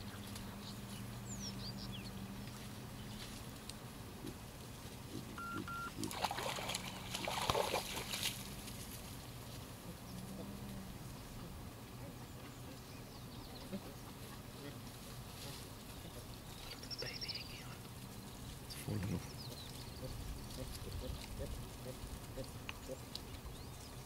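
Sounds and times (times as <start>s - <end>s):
bird chirps: 0.0s - 2.2s, 16.5s - 17.8s
short double beep: 5.4s - 5.9s
water splashing: 5.6s - 8.8s.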